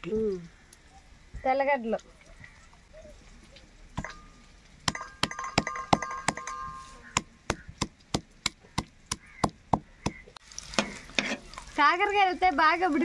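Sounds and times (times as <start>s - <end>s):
stone pestle pounding in mortar: 4.9s - 10.2s.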